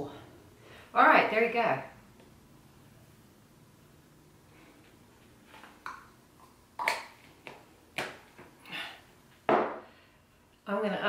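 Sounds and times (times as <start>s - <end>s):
objects knocking on a desk: 9.5s - 9.8s.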